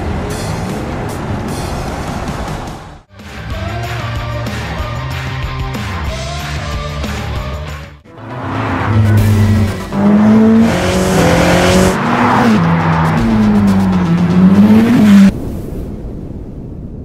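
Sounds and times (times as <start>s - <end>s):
sports car engine revving: 8.2s - 15.3s.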